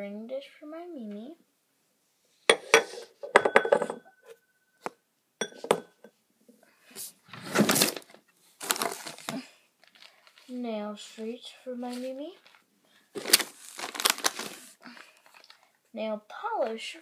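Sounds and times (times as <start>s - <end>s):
ring dish clinking: 2.5s - 4.4s, 5.4s - 6.1s
rustling handling noises: 6.9s - 15.8s.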